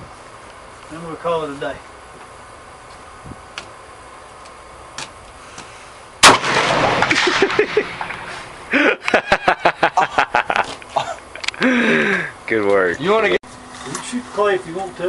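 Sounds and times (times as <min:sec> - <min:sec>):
rifle shot: 0:06.2 - 0:08.6
man laughing: 0:07.1 - 0:12.4.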